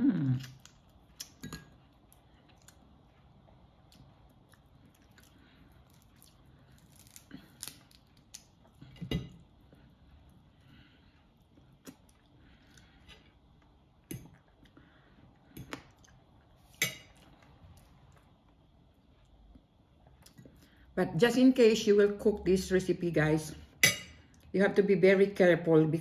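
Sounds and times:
crab shell cracking: 5.9s - 8.5s.

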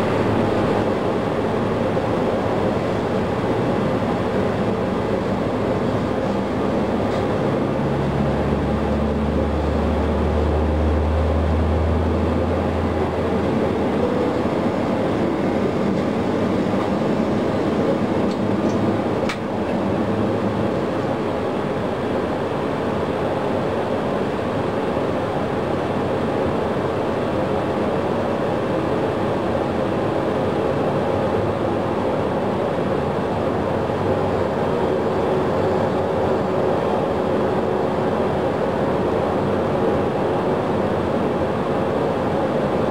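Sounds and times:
jet engines starting: 0.0s - 42.9s.

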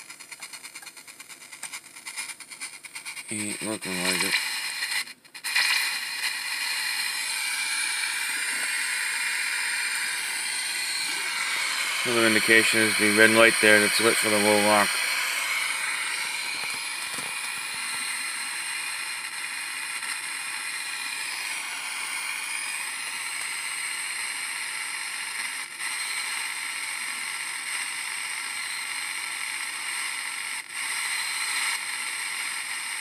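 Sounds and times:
radio static hiss: 0.0s - 22.3s.

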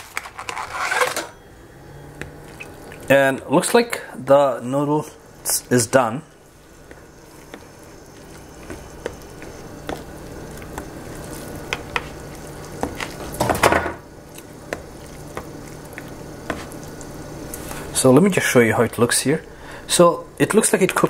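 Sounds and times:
fork scraping plastic bowl: 0.0s - 1.3s
fork stirring noodles: 6.4s - 13.4s, 14.2s - 17.9s.

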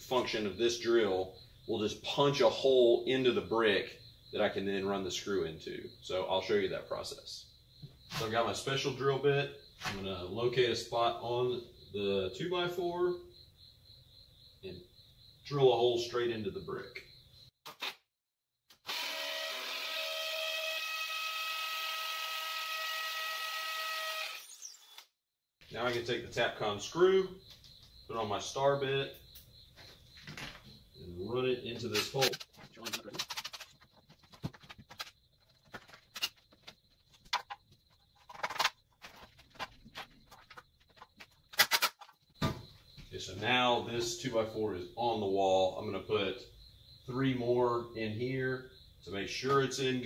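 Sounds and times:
hammer drill boring into brick: 18.8s - 25.1s.

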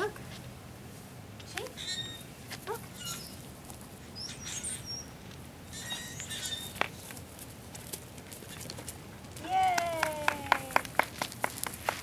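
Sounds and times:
bird chirps and calls: 4.2s - 5.1s, 5.7s - 6.8s.

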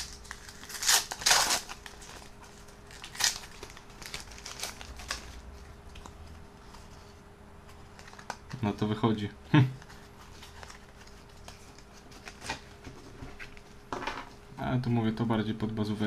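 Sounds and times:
foil packet tearing and crinkling: 0.0s - 5.5s.

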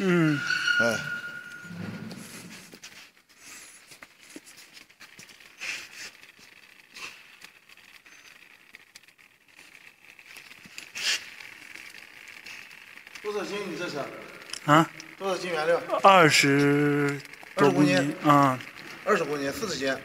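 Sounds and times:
faint high whine: 0.0s - 2.8s
plastic bag crinkling: 17.1s - 20.0s.

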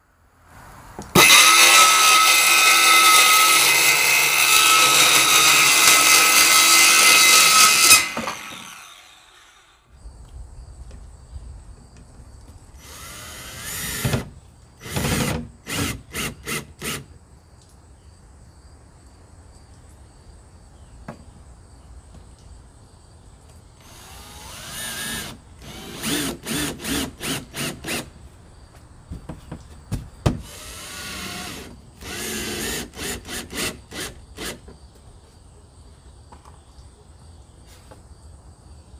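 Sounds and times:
circular saw cutting plywood: 1.1s - 9.8s, 23.9s - 28.1s
cordless drill driving screws: 1.2s - 9.8s, 12.8s - 17.0s, 23.8s - 28.1s, 30.4s - 34.6s.

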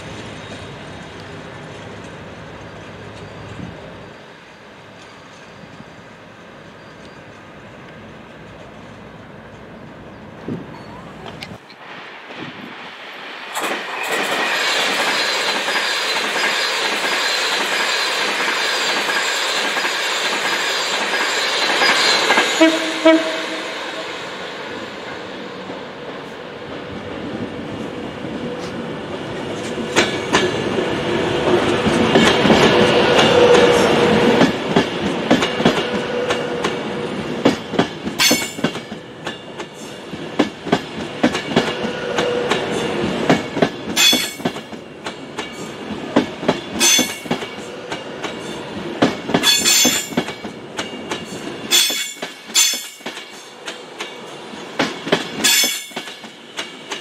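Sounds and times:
train rumble: 0.0s - 57.0s
wheels clicking over rail joints: 31.5s - 57.0s
sharp metallic clacks: 37.5s - 39.4s, 43.3s - 45.6s, 49.0s - 54.2s, 54.8s - 57.0s.

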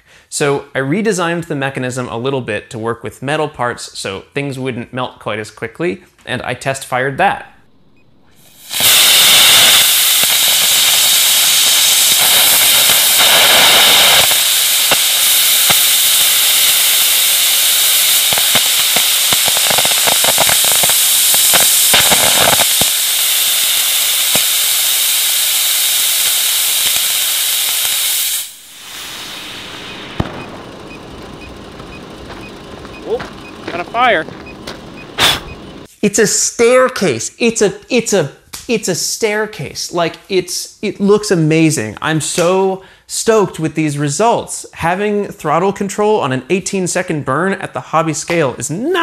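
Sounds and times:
crackling pops: 7.6s - 35.9s
rocket motor jet hiss: 7.6s - 35.9s.

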